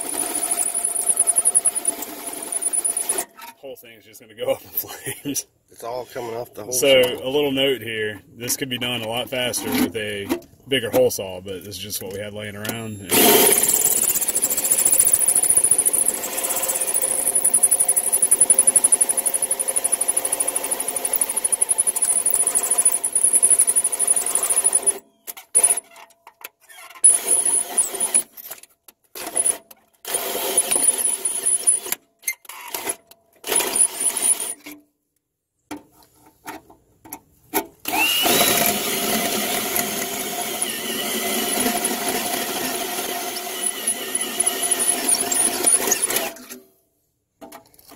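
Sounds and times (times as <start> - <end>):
drill cutting sheet metal: 0.0 - 3.2, 13.1 - 25.0, 27.0 - 28.3, 29.3 - 32.0, 33.5 - 34.6, 37.9 - 46.5.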